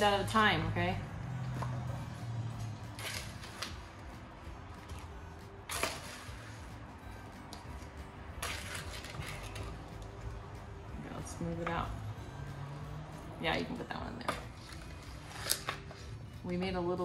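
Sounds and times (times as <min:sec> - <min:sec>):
spoon scraping: 0:07.8 - 0:10.0.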